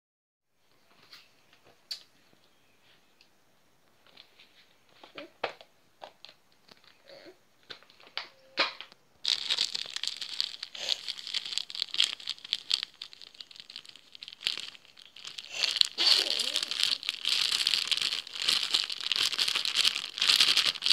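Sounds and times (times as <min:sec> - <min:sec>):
plastic bag crinkling: 0:09.2 - 0:20.9.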